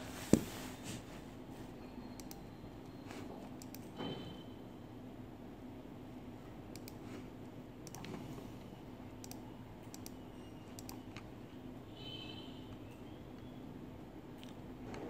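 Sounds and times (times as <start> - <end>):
faint scattered clicks: 6.7 - 7.0.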